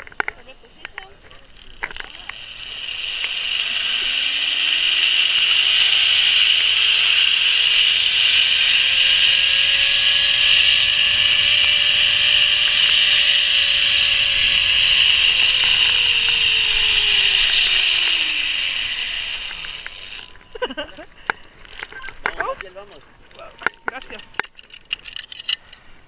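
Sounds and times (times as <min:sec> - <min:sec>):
zipline pulley whirring on cable: 0:00.9 - 0:21.0.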